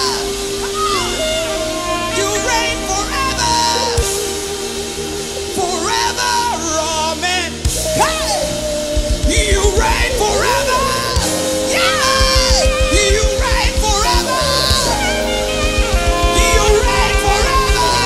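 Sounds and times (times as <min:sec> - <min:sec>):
held keyboard chords: 0:00.0 - 0:18.0
person singing wordless vocal runs: 0:00.0 - 0:18.0
fast kick drum beat: 0:11.2 - 0:18.0.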